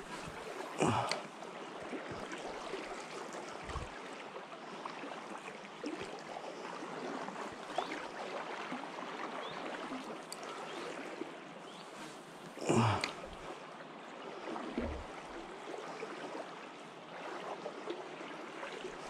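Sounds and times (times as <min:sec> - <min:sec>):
river flowing over stones: 0:00.0 - 0:09.9.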